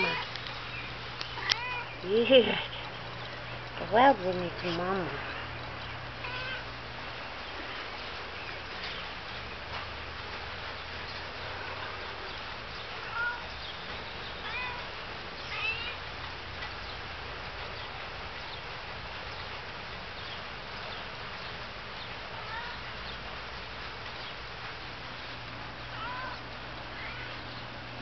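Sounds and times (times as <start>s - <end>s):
cat meowing: 1.4s - 2.0s, 6.2s - 6.7s, 13.0s - 13.4s, 14.4s - 16.0s, 22.4s - 22.9s, 26.0s - 27.4s.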